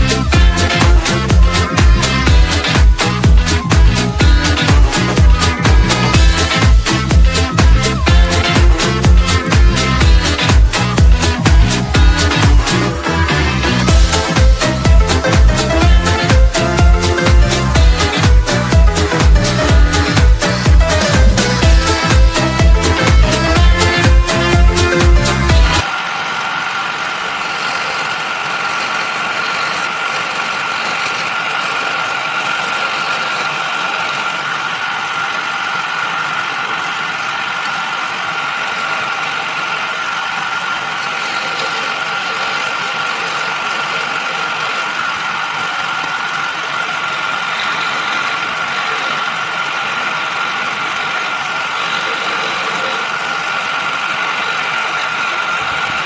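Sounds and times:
wood lathe motor whining: 0.0 - 56.0.

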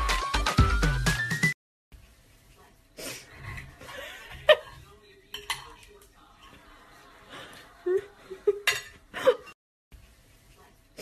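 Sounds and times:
dishware clinking and knocking: 5.3 - 5.9, 8.6 - 9.0.

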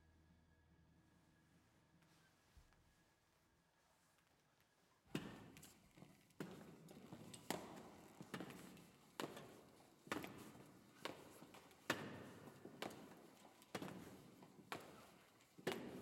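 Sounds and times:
hard-soled footsteps in stone hall: 4.2 - 16.0.

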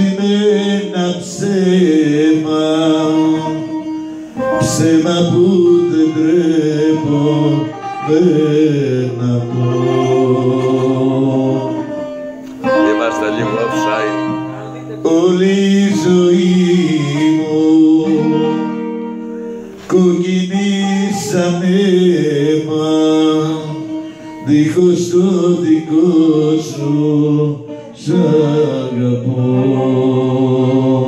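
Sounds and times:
man singing into microphone: 0.0 - 12.0, 12.6 - 18.7, 19.8 - 31.0
guitar accompaniment: 0.0 - 31.0.

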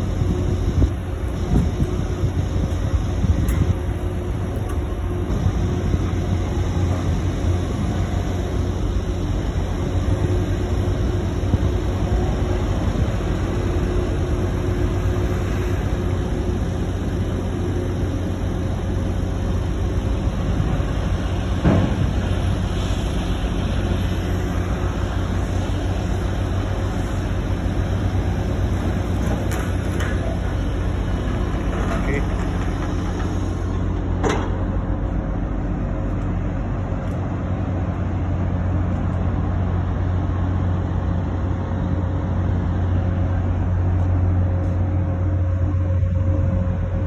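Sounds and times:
crane machinery low drone: 0.0 - 47.0.

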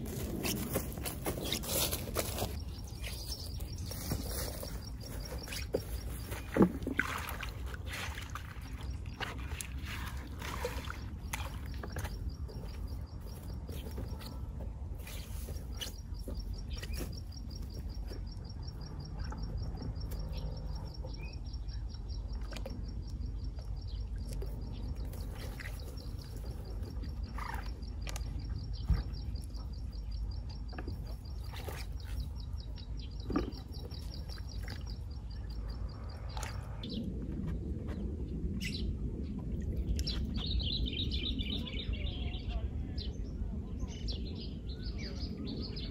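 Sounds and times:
rustles: 0.0 - 6.6
small splashes: 5.7 - 12.8
low rumble: 34.6 - 45.9.

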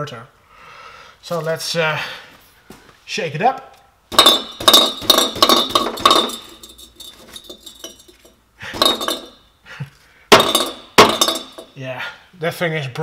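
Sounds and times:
catalytic converter rattling: 4.1 - 9.4, 10.3 - 11.7.

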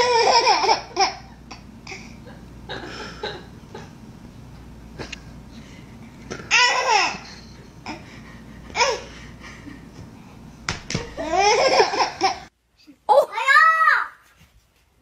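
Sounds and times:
baby laughing: 0.0 - 1.6, 6.5 - 8.1, 8.7 - 9.1, 11.1 - 12.5.

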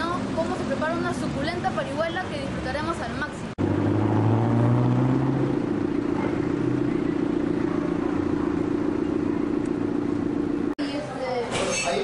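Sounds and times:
vehicle engine humming: 0.0 - 10.8.

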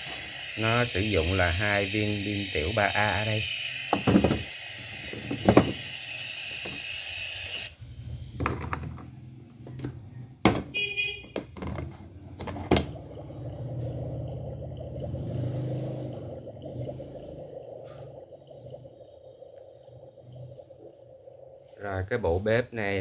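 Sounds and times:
steady high-pitched tone: 0.0 - 7.7.

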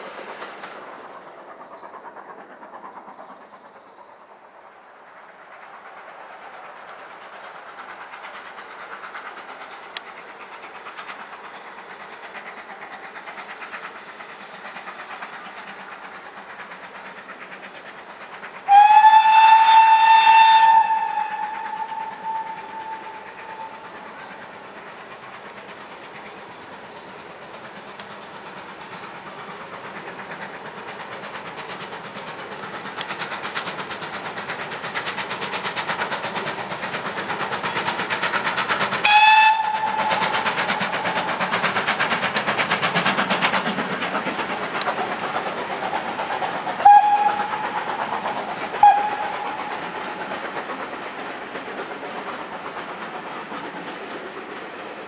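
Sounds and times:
steam locomotive exhaust beats: 0.0 - 55.0
train coaches rolling on rails: 0.0 - 55.0
steam locomotive whistle: 18.6 - 24.0, 39.0 - 41.4, 46.8 - 48.0, 48.7 - 49.9.

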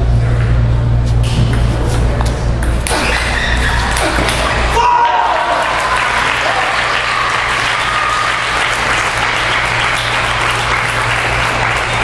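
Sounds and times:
spectators clapping: 3.9 - 12.0.

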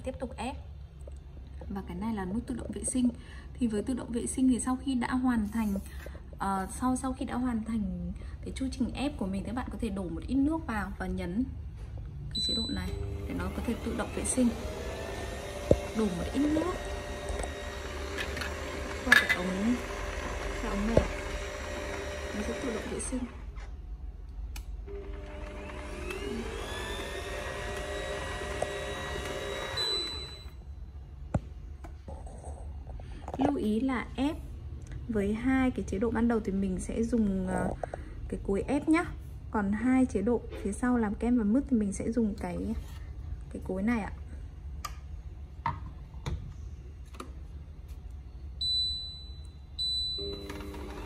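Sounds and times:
juicer motor whirring: 13.0 - 23.4, 24.9 - 30.4, 50.2 - 51.0.

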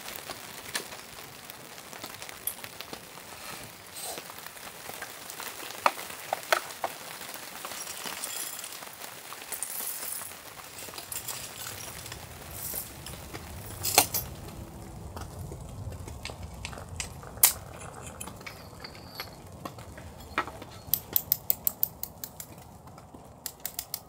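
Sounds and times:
rain patter: 0.0 - 24.0
metal or glass gear clinking: 7.7 - 8.8, 9.6 - 14.3, 17.8 - 19.4.

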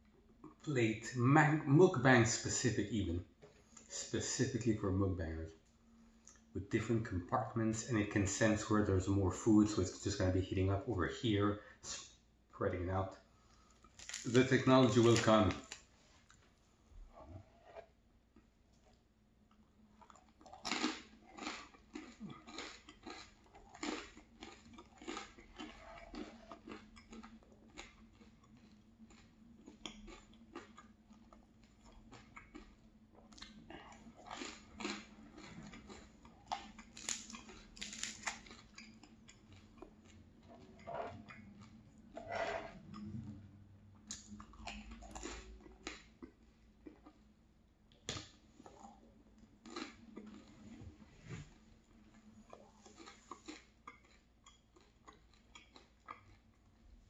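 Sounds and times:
crackling bread crunches: 13.6 - 16.4, 19.5 - 42.1
wet chewing sounds: 18.4 - 42.2, 42.8 - 47.3, 48.6 - 57.0.

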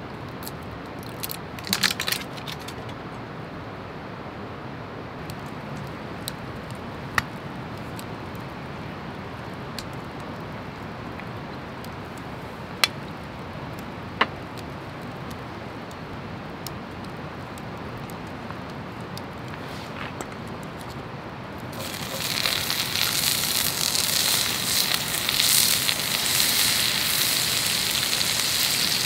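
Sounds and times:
wood fire crackling: 0.0 - 29.0
sharp fire pops: 21.7 - 29.0.

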